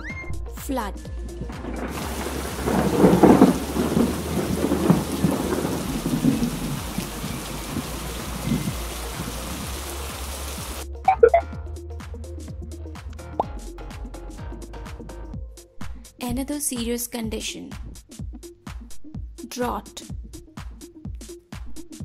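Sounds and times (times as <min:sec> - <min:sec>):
thunder rumbling: 0:00.4 - 0:11.4
heavy rain hissing: 0:01.1 - 0:10.9
loud pitched blip: 0:11.1 - 0:11.5.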